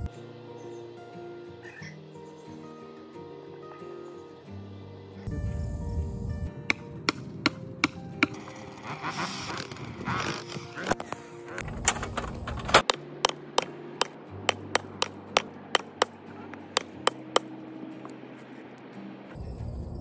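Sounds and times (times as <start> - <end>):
sledgehammer striking wooden post: 12.6 - 17.5.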